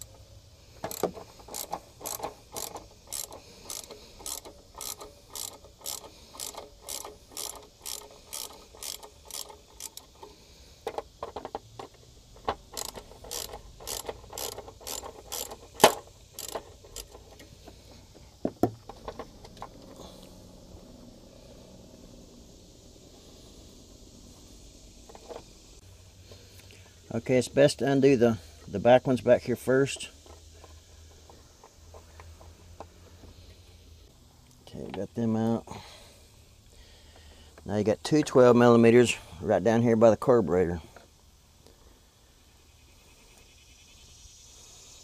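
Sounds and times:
ratchet wrench clicking: 0:00.8 - 0:17.5.

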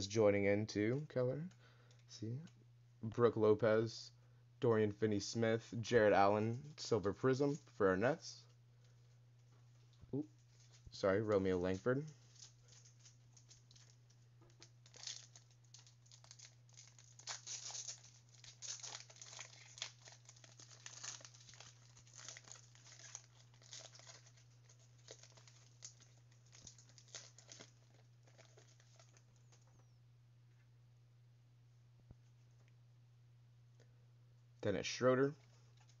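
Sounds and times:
faint low hum: 0:00.0 - 0:36.0
card pack wrapper crinkling: 0:10.4 - 0:29.7.

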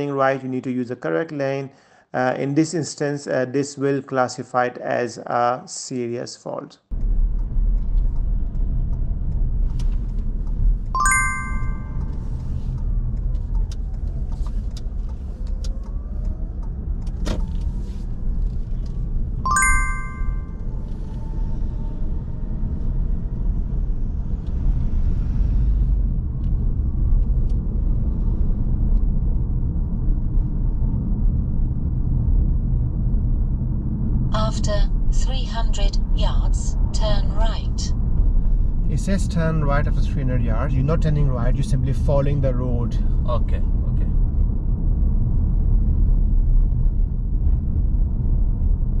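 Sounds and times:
car cabin road and engine noise: 0:07.0 - 0:11.0, 0:11.6 - 0:19.4
short ringing chime: 0:11.0 - 0:12.0, 0:19.5 - 0:20.5.

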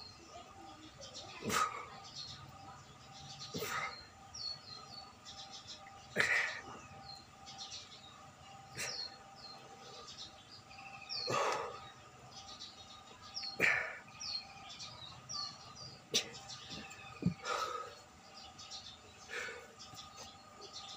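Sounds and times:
small birds chirping: 0:00.0 - 0:20.9
person breathing hard: 0:17.3 - 0:18.0, 0:19.2 - 0:19.8.

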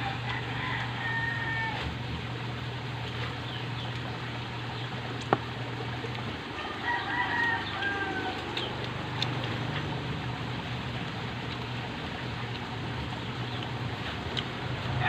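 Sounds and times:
rooster crowing: 0:00.0 - 0:01.9, 0:06.5 - 0:08.7
steady low hum: 0:00.0 - 0:15.0.

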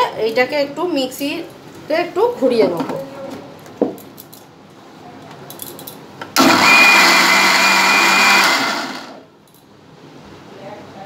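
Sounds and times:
mixer grinder motor whine: 0:06.4 - 0:09.3.

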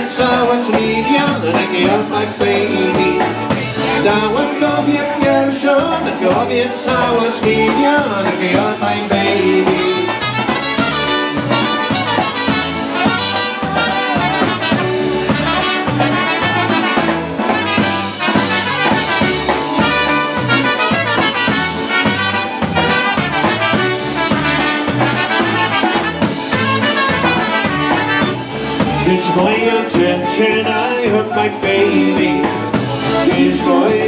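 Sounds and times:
polka band playing: 0:00.0 - 0:34.0
trumpets playing melody: 0:09.3 - 0:34.0.

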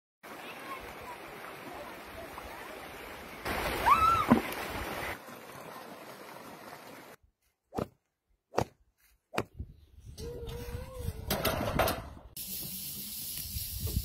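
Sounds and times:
stream running over rocks: 0:00.2 - 0:07.2.

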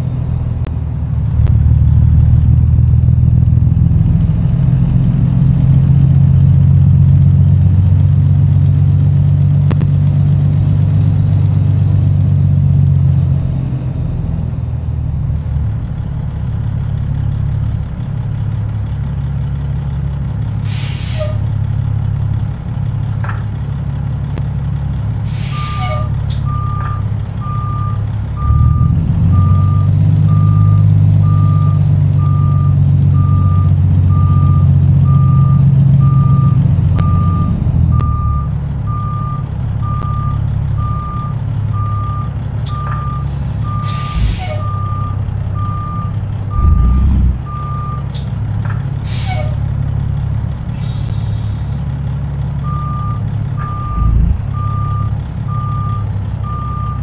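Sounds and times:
diesel truck engine running: 0:00.0 - 0:57.0
air brake hiss: 0:20.6 - 0:21.4, 0:25.3 - 0:26.1, 0:43.2 - 0:44.7, 0:49.1 - 0:49.6, 0:50.8 - 0:51.8
reversing alarm beeping: 0:25.5 - 0:48.1, 0:52.6 - 0:57.0.

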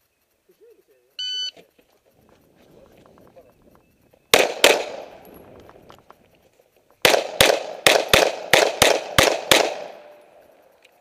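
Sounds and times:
pistol shots: 0:04.3 - 0:05.8, 0:07.0 - 0:10.2.

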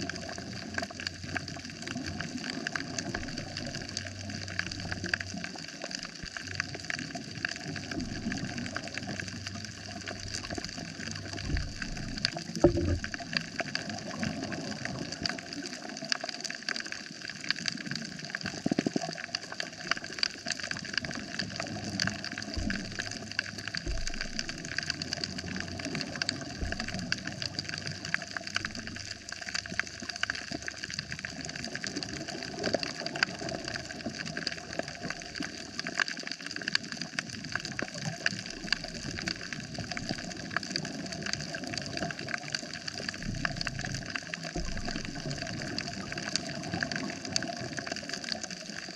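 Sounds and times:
constant underwater hiss: 0:00.0 - 0:48.9
crackle of fine clicks: 0:00.0 - 0:48.9
soft low thumps: 0:08.0 - 0:08.7, 0:09.8 - 0:13.2, 0:22.4 - 0:29.0, 0:43.2 - 0:45.4.

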